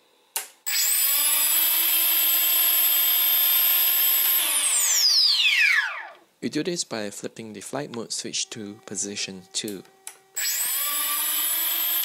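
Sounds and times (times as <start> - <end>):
drone motors whining: 0.7 - 6.2, 9.6 - 12.0
short motor buzz: 0.7 - 6.2, 9.9 - 12.0.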